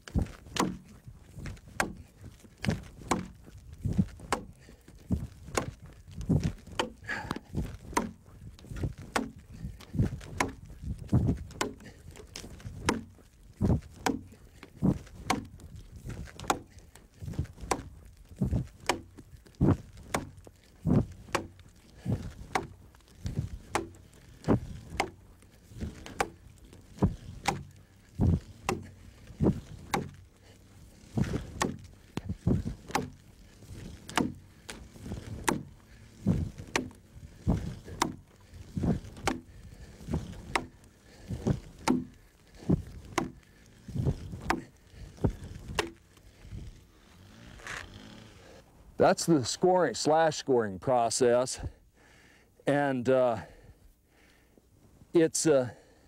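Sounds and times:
axe chopping into a log: 0.1 - 2.0, 2.6 - 4.6, 5.2 - 25.2, 25.8 - 30.2, 31.1 - 34.4, 35.0 - 38.2, 38.8 - 39.5, 40.1 - 43.4, 44.0 - 46.0.

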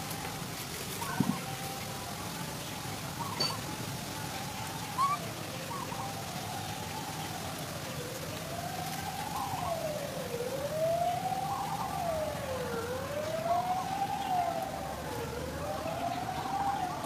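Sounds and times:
siren wailing: 4.2 - 17.0.

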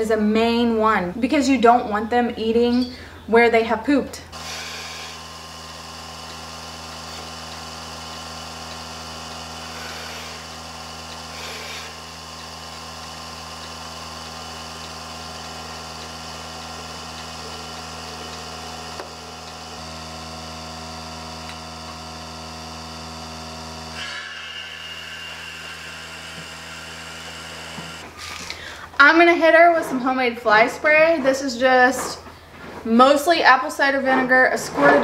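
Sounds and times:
vacuum pump humming: 4.3 - 28.9.

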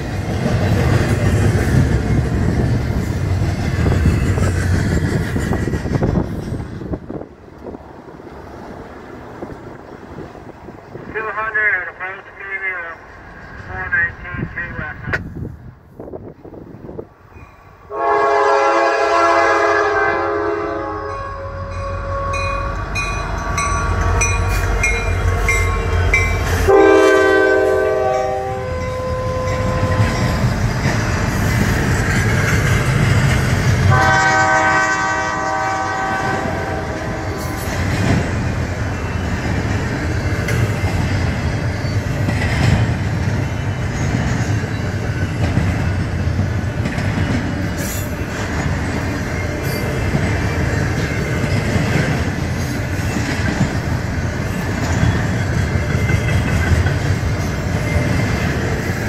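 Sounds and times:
locomotive engines rumbling: 0.0 - 59.0
train cars rumbling and clattering: 0.0 - 59.0
locomotive air horn blasts: 17.9 - 22.6, 26.6 - 30.0, 33.9 - 37.6.

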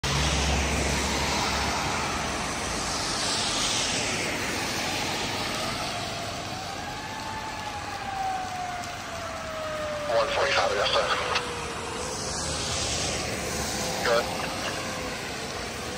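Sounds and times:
fire engine siren: 0.0 - 15.9
traffic on wet road: 0.0 - 15.9.

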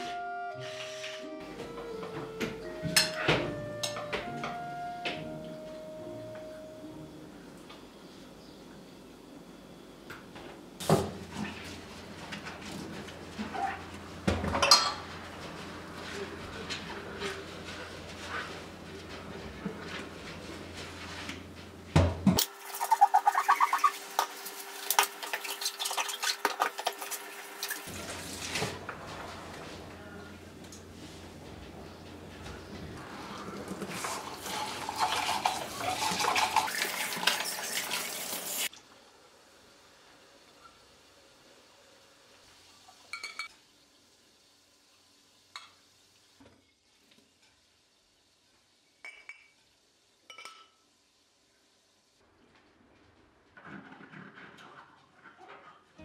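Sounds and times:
glasses and dishes clinking: 14.5 - 15.1, 43.1 - 43.5, 49.0 - 49.6, 50.3 - 50.8
water splashing: 22.5 - 28.6
sponge scrubbing: 22.7 - 29.9.

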